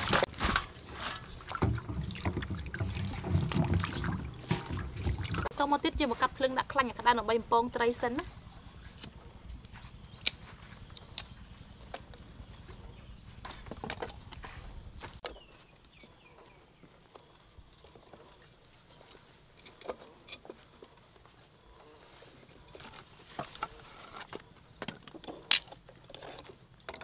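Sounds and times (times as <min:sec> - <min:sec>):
twig fire crackling: 0:08.3 - 0:12.5
twigs clicking and snapping: 0:08.9 - 0:12.3.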